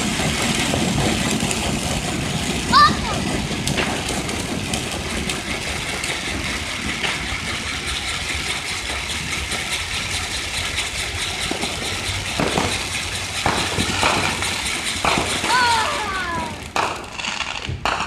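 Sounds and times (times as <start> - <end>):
firework crackling: 0.0 - 18.0
spinning firework hissing: 0.0 - 18.0.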